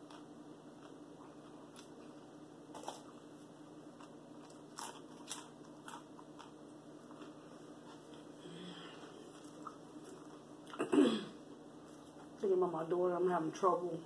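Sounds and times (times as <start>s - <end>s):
potato chip crunching: 0.0s - 8.3s
faint steady hum: 0.0s - 14.0s.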